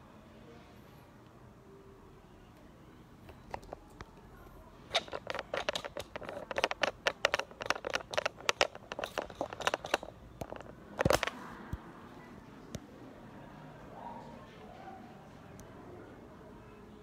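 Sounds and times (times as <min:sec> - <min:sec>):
crackling clicks: 0:04.9 - 0:11.8.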